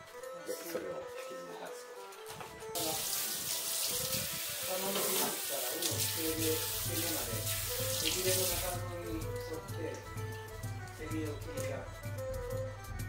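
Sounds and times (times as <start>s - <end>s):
background music: 0.0s - 13.0s
tap running into a sink: 2.8s - 8.8s.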